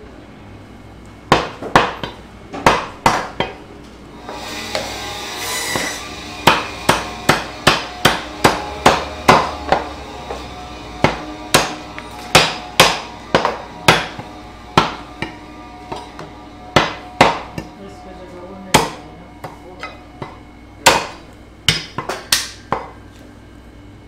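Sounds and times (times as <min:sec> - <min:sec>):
cleaver chopping meat on wood: 0:01.3 - 0:03.6, 0:05.7 - 0:09.9, 0:11.0 - 0:14.2, 0:14.8 - 0:15.4, 0:16.8 - 0:17.7, 0:20.9 - 0:23.0.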